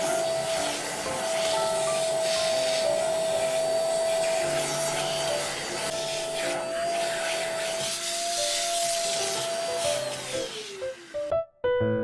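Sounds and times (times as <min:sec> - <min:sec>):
handheld vacuum cleaner running: 0:00.0 - 0:11.3.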